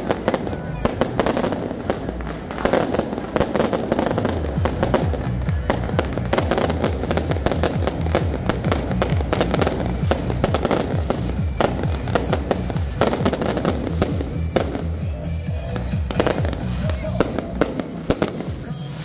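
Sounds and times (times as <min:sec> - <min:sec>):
fireworks bangs and crackling: 0:00.0 - 0:19.0.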